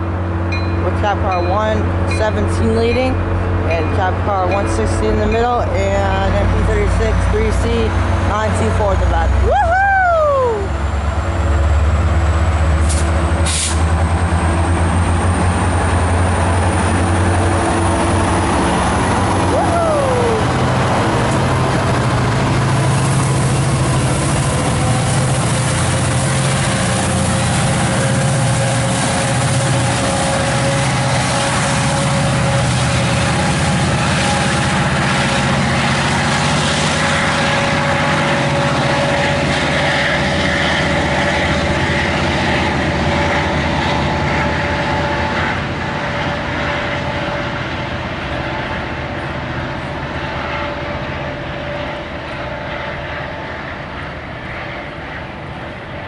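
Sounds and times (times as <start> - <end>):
diesel engine hum: 0.0 - 56.0
high whine: 0.0 - 56.0
train wheels on rails: 10.7 - 56.0.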